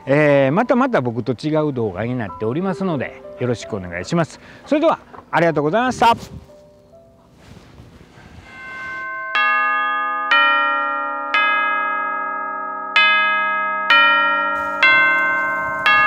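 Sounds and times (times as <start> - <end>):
bell-like chime notes: 8.4 - 16.0.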